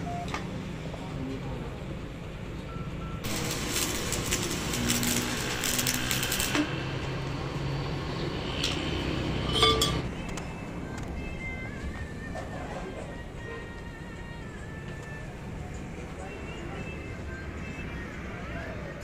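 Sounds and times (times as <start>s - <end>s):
welding arc crackling: 3.2s - 9.6s
metal clink: 9.5s - 10.1s.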